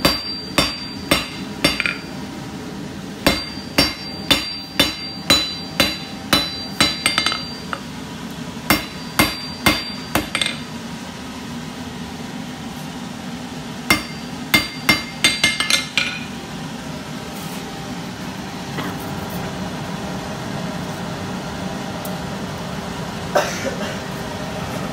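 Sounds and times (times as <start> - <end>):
hammer striking metal on anvil: 0.0 - 2.2, 3.2 - 7.9, 8.7 - 10.7, 13.9 - 16.4.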